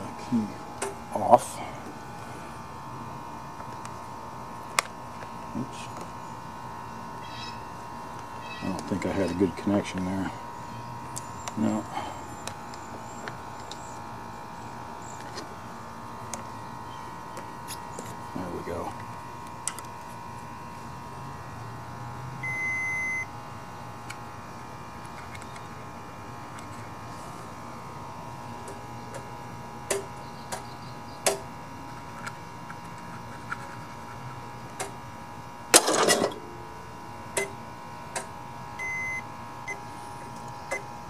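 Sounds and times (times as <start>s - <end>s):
multimeter high beep: 22.4s - 23.3s, 38.8s - 39.8s.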